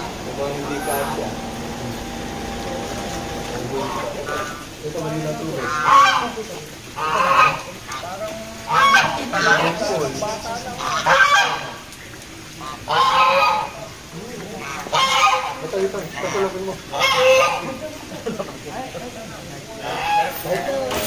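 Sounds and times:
geese honking: 0:00.0 - 0:04.8, 0:05.5 - 0:11.9, 0:12.5 - 0:13.9, 0:14.6 - 0:17.8, 0:19.8 - 0:20.6.

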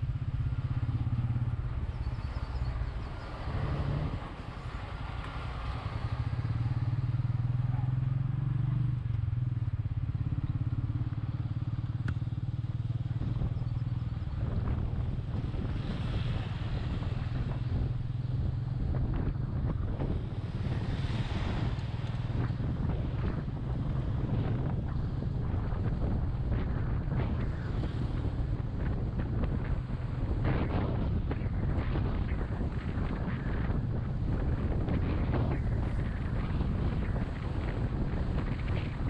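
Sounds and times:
motorcycle engine running: 0:04.3 - 0:39.0.

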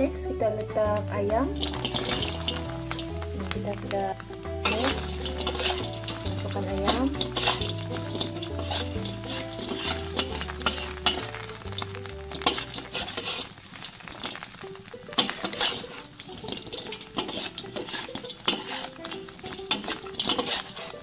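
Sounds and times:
chicken sizzling: 0:00.0 - 0:21.0
metal spatula scraping a pan: 0:01.2 - 0:21.0.

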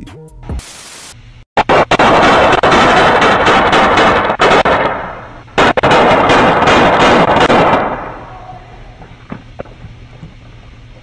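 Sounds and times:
rapid gunshots: 0:01.6 - 0:08.3.

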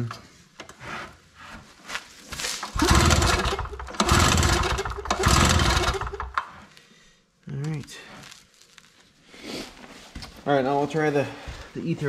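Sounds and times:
engine turning over: 0:02.6 - 0:06.5
generator recoil starter pulls: 0:02.6 - 0:06.6.

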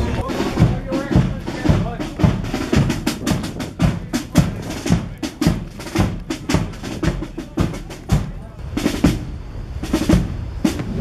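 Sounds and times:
marching drums beating: 0:00.0 - 0:11.0.

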